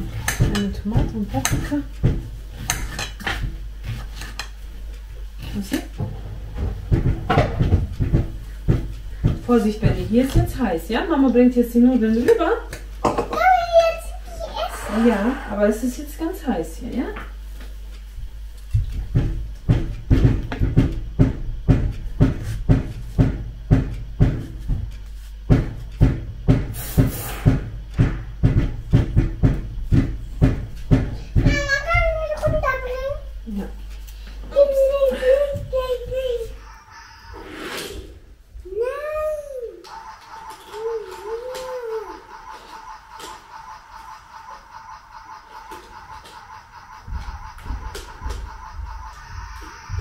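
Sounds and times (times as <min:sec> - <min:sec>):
dishes knocking: 0:00.0 - 0:04.6, 0:06.0 - 0:10.7, 0:13.0 - 0:13.4, 0:25.5 - 0:31.8
dull knocks: 0:06.0 - 0:10.7, 0:18.8 - 0:24.9, 0:25.5 - 0:32.7.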